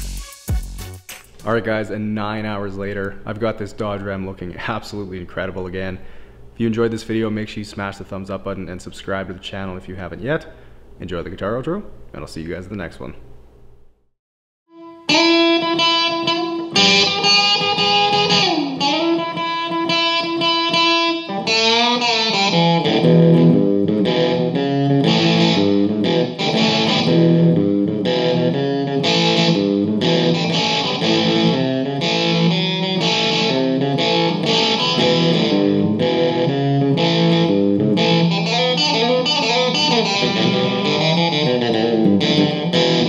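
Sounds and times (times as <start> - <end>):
solo electric guitar: 14.7 - 43.0.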